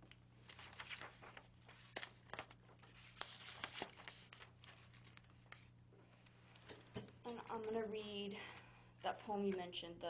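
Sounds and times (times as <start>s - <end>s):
paper rustling and clicking: 0.0s - 5.7s
low electrical hum: 0.0s - 10.0s.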